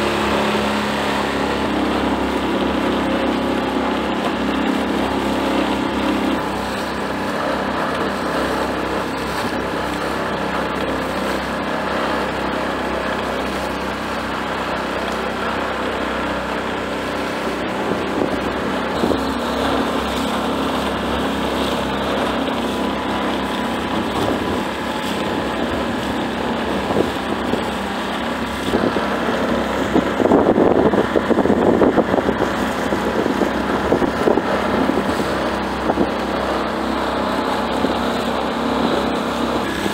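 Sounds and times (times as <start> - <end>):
outboard motor running: 0.0 - 39.9
water splashing against hull: 0.0 - 39.9
wind on microphone: 17.5 - 20.1, 23.8 - 39.9.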